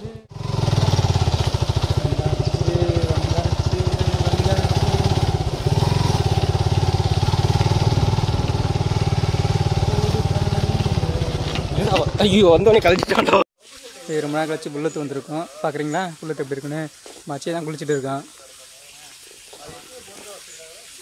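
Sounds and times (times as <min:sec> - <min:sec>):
motorcycle engine running: 0:00.0 - 0:12.7.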